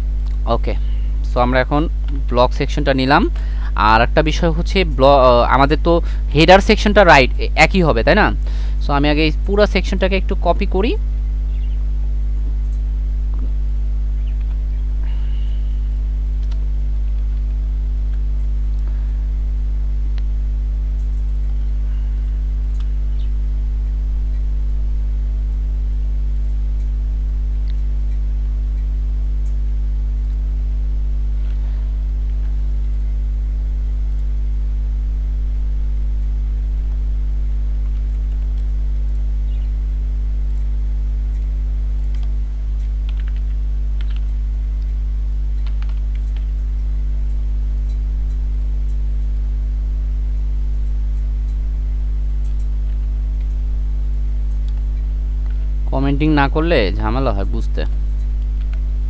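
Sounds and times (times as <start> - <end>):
electrical mains hum: 0.0 - 59.0
faint clicks: 16.4 - 18.9, 22.7 - 23.0, 41.3 - 49.3.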